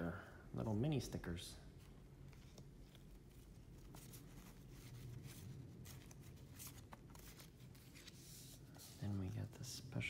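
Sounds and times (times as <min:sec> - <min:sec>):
low room hum: 0:00.0 - 0:10.0
cards rustling and tapping: 0:02.1 - 0:09.0.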